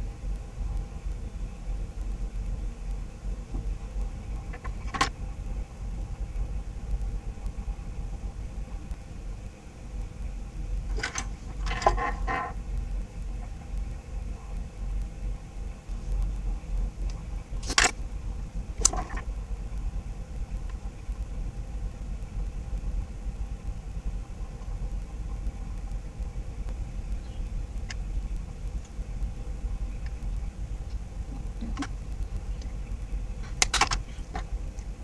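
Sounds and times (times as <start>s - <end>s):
low background rumble: 0.0s - 35.0s
sharp clicks: 17.0s - 18.1s, 29.9s - 34.9s.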